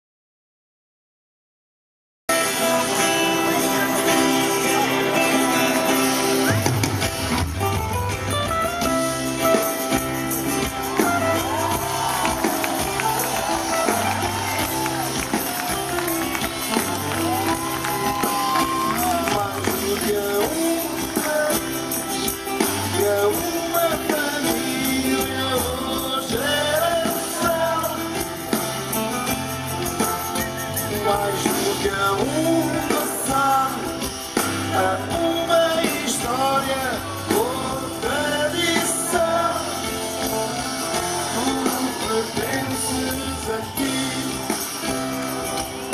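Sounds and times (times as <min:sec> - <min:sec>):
live pop-rock band playing: 0:02.3 - 0:45.9
person singing: 0:09.1 - 0:29.2, 0:29.8 - 0:45.9.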